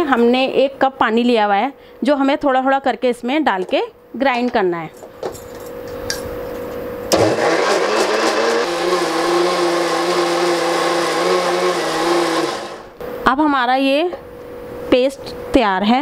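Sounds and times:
mixer grinder motor grinding: 7.1s - 13.0s.

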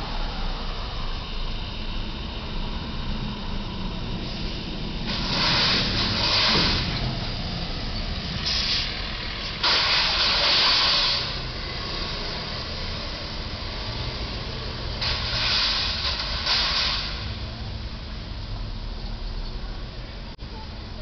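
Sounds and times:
traffic rumble: 0.0s - 21.0s
bursts of hiss: 5.1s - 7.0s, 9.6s - 11.4s, 15.0s - 17.3s.

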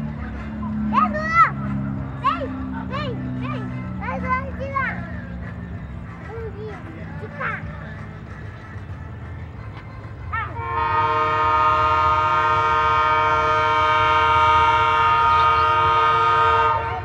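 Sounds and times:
locomotive air horn blast: 10.5s - 17.0s.

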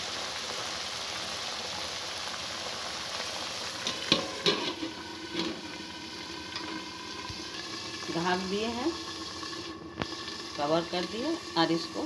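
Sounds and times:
onions sizzling in hot oil: 0.0s - 12.0s
steel lid clanking on pan: 3.8s - 5.7s.

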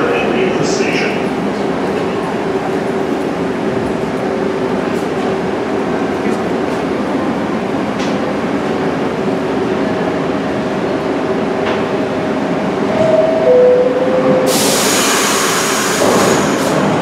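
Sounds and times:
subway train rumble: 0.0s - 17.0s
loud hiss: 14.5s - 16.8s.

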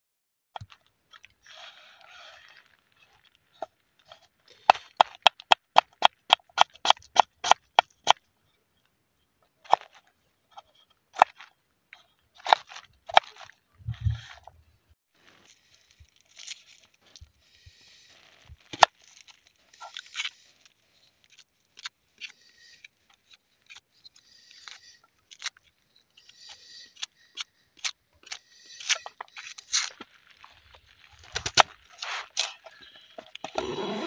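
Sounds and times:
onion skin tearing and crackling: 15.8s - 17.3s, 18.6s - 22.3s, 27.8s - 32.6s.

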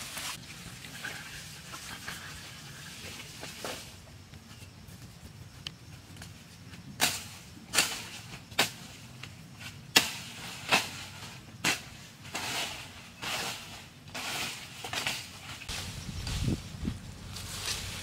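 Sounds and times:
leaves rustling: 0.0s - 5.3s, 6.3s - 18.0s
blade chopping branches: 7.0s - 18.0s.

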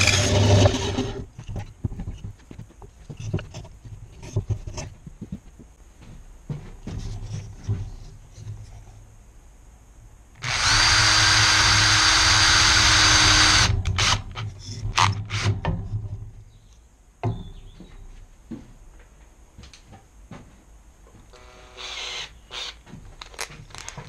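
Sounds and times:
cordless drill motor whine: 10.4s - 14.3s, 21.3s - 24.0s
knocks and clatters: 13.8s - 16.4s.

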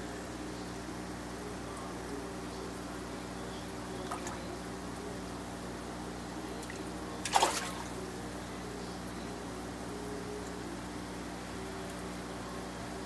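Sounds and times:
pump hum: 0.0s - 13.0s
fish splashing: 6.6s - 8.0s.

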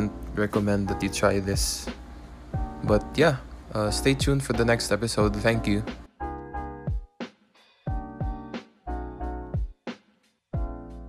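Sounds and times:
background music with a beat: 1.6s - 3.2s, 3.9s - 11.0s.

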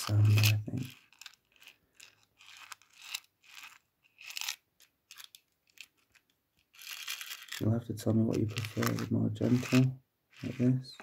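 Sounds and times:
small metal pieces rattling in a case: 0.9s - 7.6s.

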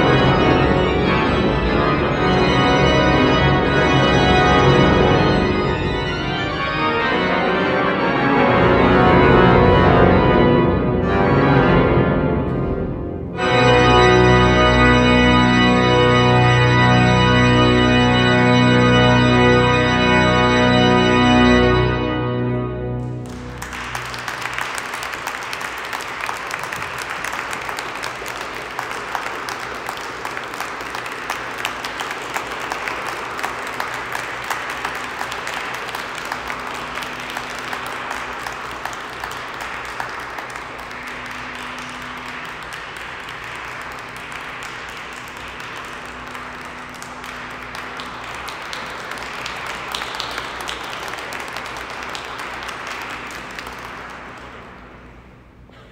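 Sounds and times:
audience applauding: 22.9s - 55.6s.

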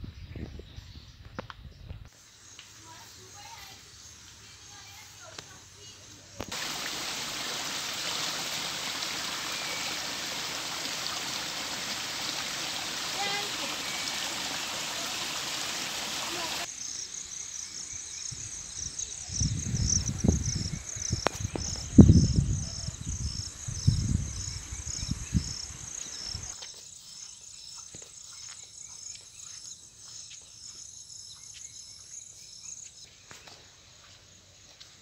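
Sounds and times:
wind noise on microphone: 0.0s - 2.1s, 18.3s - 26.6s
insect chirping: 2.1s - 35.0s.

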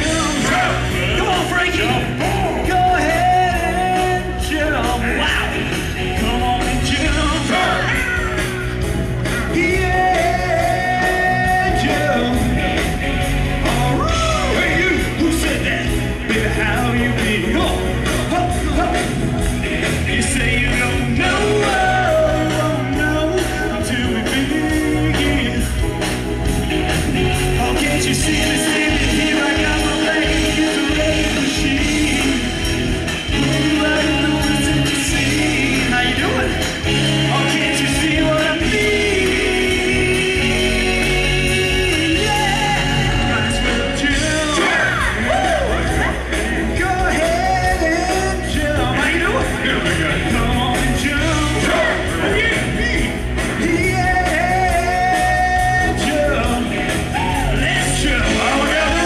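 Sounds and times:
rock and roll music with singing: 0.0s - 59.0s.

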